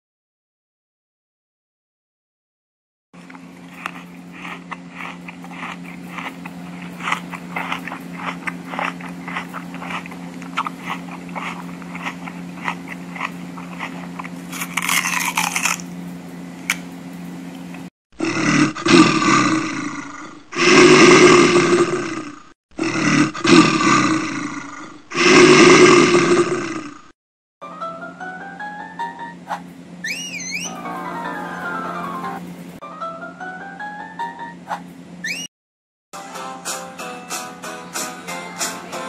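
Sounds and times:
steady low hum: 3.2 - 17.9
rabbit chewing grass: 3.3 - 15.7
rough roaring sound: 18.2 - 27.1.

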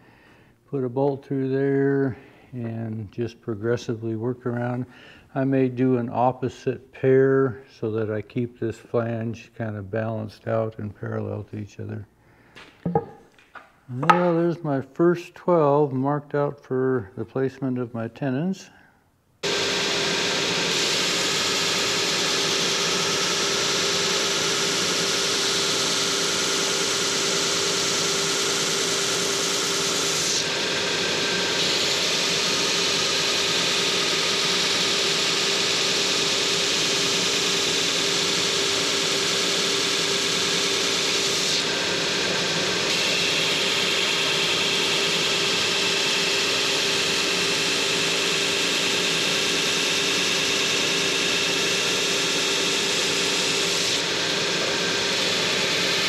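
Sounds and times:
belt sander humming: 13.9 - 14.6, 19.4 - 56.0
wood sanding hiss: 20.6 - 35.4.

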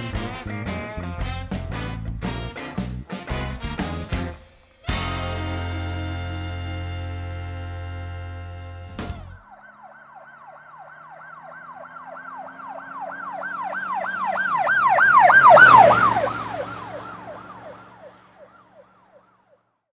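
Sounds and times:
vehicle passing rush: 4.9 - 19.6
emergency siren yelping: 9.0 - 19.6.

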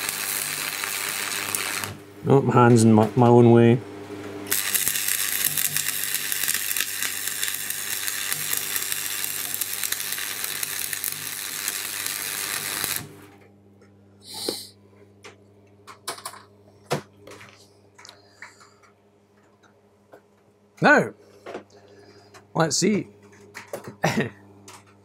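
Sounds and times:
welding arc crackling and hissing: 0.0 - 2.0, 4.5 - 13.2
steady low hum: 0.0 - 25.0.

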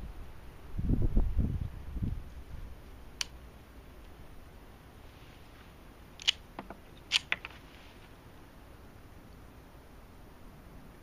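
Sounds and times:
pistol mechanism clicks: 6.2 - 6.4, 7.0 - 7.5.

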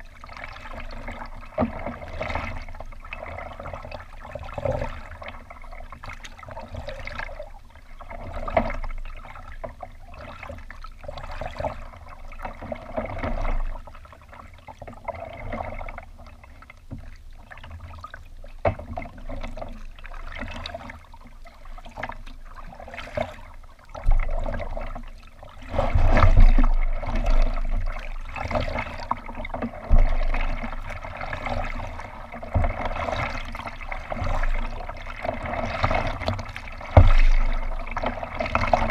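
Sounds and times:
water lapping against kayak hull: 0.0 - 38.9.

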